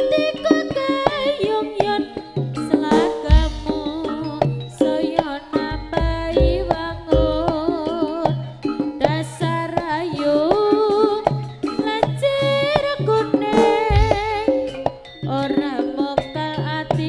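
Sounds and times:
hand drums beating: 0.0 - 17.0
wavering melody: 2.7 - 9.7.

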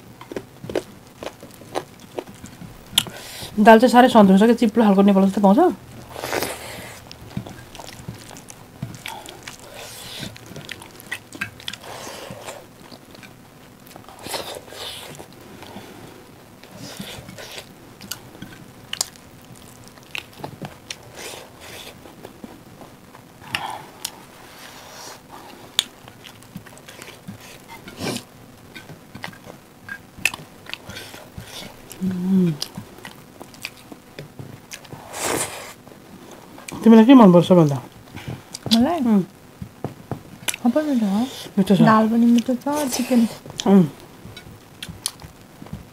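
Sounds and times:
wet chewing and lip smacks: 7.0 - 11.8, 44.8 - 45.3.

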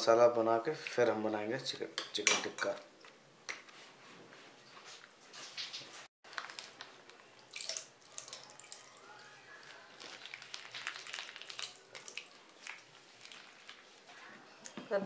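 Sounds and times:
yogurt splatting and dripping: 6.3 - 13.9.

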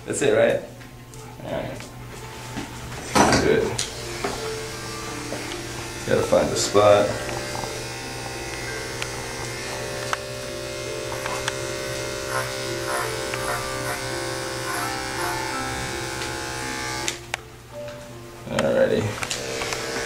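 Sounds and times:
background music: 0.0 - 20.0
electric clipper buzzing: 3.8 - 17.4, 19.1 - 20.0.

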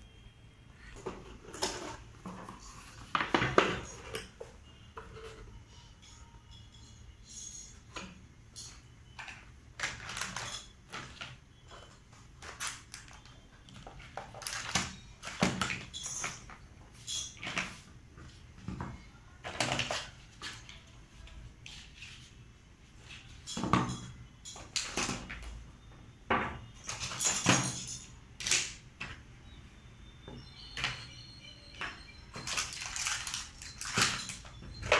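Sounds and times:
plastic toy pieces clacking: 32.3 - 34.9.

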